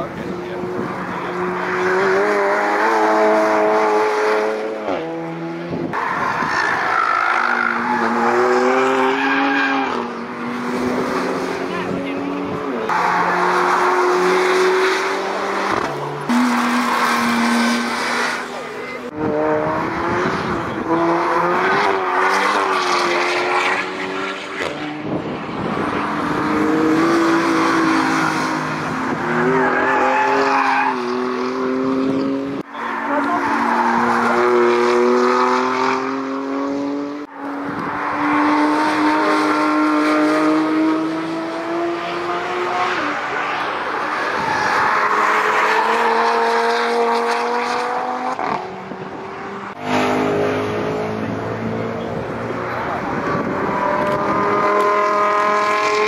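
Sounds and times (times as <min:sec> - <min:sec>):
race car engines accelerating: 0:00.0 - 0:56.0
race car engine accelerating: 0:45.1 - 0:56.0.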